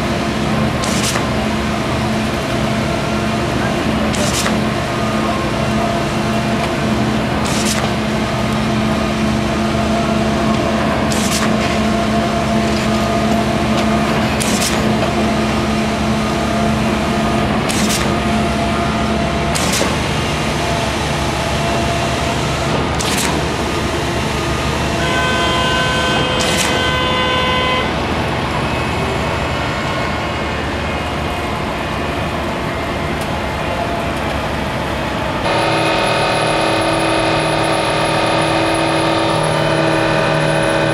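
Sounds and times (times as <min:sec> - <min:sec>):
piling rig engine and hydraulics: 0:00.0 - 0:40.9
steady horn-like tone: 0:25.0 - 0:27.9, 0:35.5 - 0:40.9.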